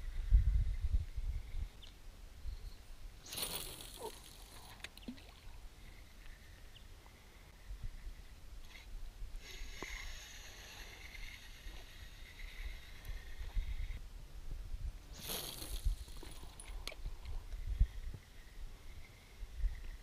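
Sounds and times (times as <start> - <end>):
fishing line hissing out: 3.2 - 6.6, 8.7 - 14.0, 15.1 - 16.7.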